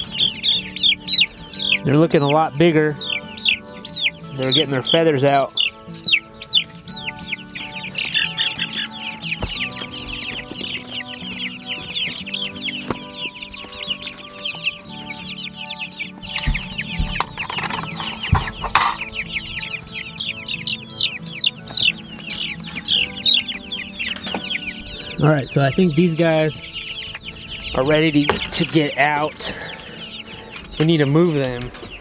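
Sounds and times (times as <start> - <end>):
chicks peeping: 0.0 - 32.0
faint background music: 0.0 - 32.0
rustling with knocks: 16.2 - 19.2.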